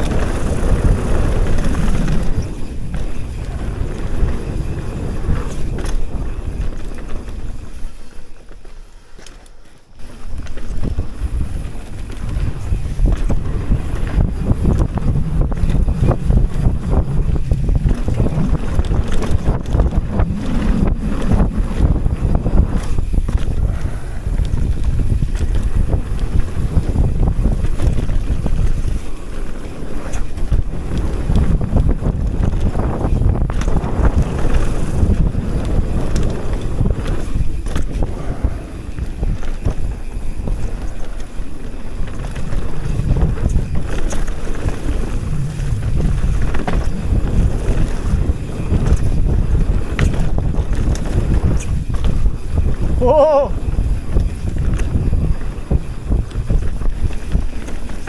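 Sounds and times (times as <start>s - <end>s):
wind on microphone: 0.0s - 8.7s, 10.0s - 58.0s
bike clicks and rattles: 0.0s - 58.0s
bike tyres rolling over gravel: 0.0s - 58.0s.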